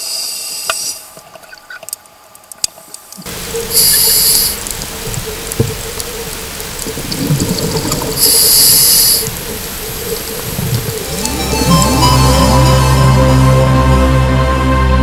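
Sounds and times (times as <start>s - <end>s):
regulator inhale hiss: 0.0s - 1.2s, 3.3s - 4.7s, 8.2s - 10.7s
faint steady hum: 0.0s - 13.5s
exhaled air bubbling underwater: 3.2s - 12.1s.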